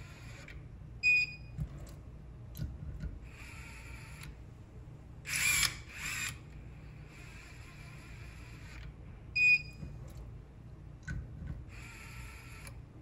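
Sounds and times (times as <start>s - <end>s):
electric screwdriver whirring: 5.3s - 6.4s, 11.7s - 12.8s.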